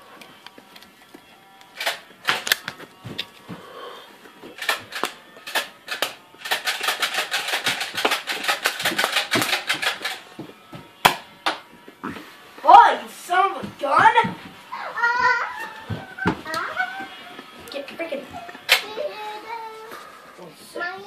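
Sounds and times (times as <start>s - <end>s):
toy dart blaster clacking: 1.6s - 3.3s, 4.5s - 10.4s, 11.0s - 11.7s, 16.2s - 19.0s.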